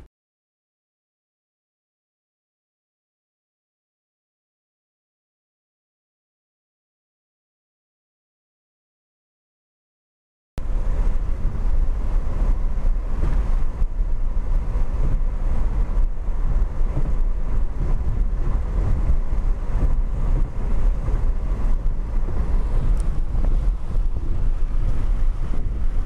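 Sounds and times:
car road rumble: 10.6s - 26.0s
wind buffeting microphone: 10.6s - 26.0s.

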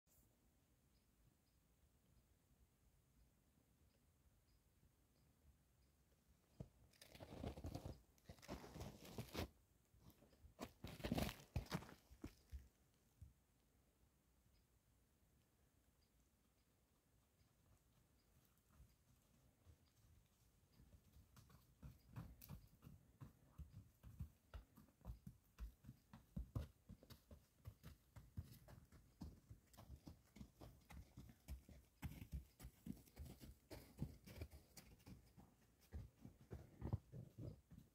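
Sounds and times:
hooves crunching in snow: 6.6s - 12.9s, 17.4s - 37.9s
footsteps crunching in snow: 7.0s - 9.5s, 10.6s - 12.5s.

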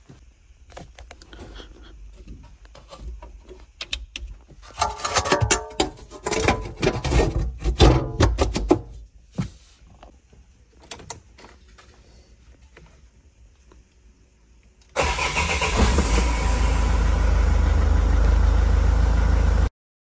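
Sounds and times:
van engine starting and idling: 14.9s - 19.7s.

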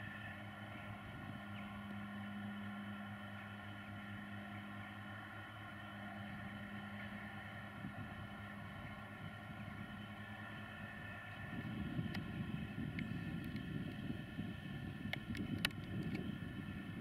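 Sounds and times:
tractor diesel engines droning: 0.0s - 17.0s.

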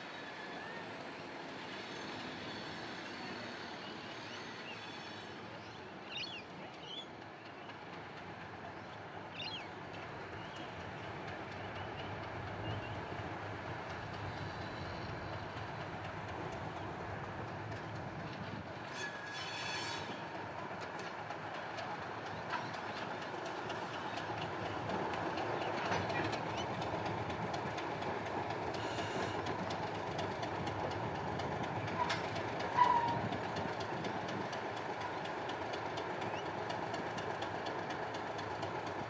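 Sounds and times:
locomotive engine and rail rumble: 0.0s - 39.0s
brief high squeaks: 18.9s - 20.2s.

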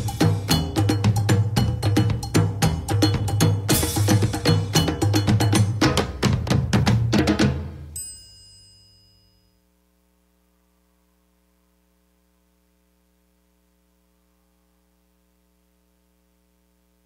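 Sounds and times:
faint steady hum: 7.9s - 17.0s.

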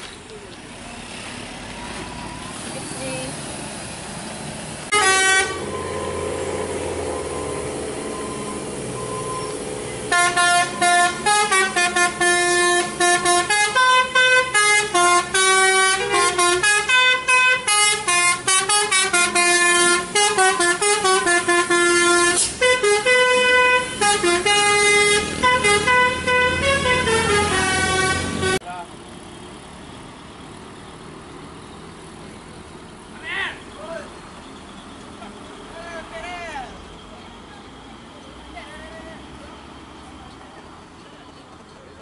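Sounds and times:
engine and traffic noise: 0.0s - 42.0s
musical truck air horn tune: 4.9s - 6.2s, 10.1s - 28.6s
horn blast: 4.9s - 6.4s, 10.1s - 28.6s.

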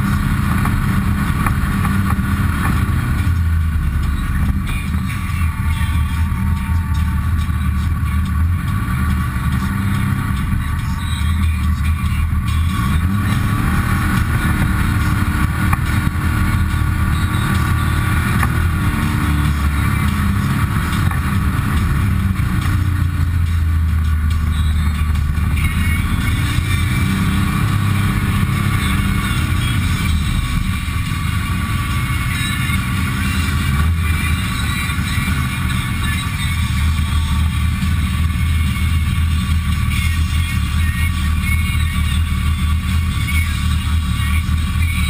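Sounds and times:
drivetrain whine: 0.0s - 45.0s
vehicle engine: 0.0s - 45.0s.

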